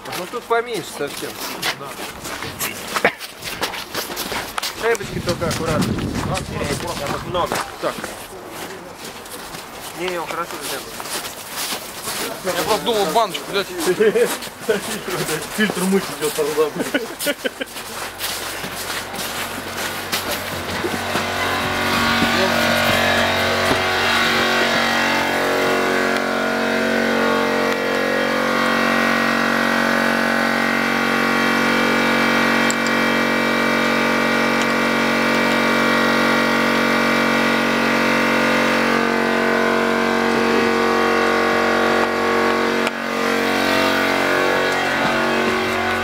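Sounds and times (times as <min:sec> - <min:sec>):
loud machine drone: 0:18.0 - 0:46.0.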